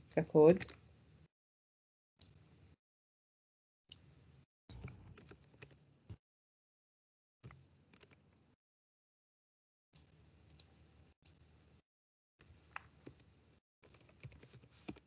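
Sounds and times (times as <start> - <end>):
keyboard and mouse clicks: 4.7 - 5.8, 7.4 - 8.4, 10.0 - 10.7, 12.7 - 15.0.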